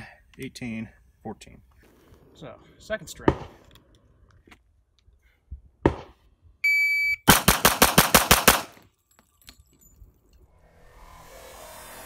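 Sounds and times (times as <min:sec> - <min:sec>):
shot timer beep: 0:06.6 - 0:07.3
pistol firing rapidly: 0:07.3 - 0:08.8.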